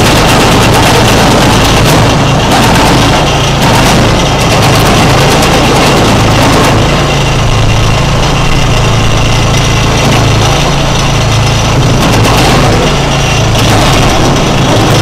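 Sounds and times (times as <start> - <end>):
log cutting machine engine: 0.0 - 15.0.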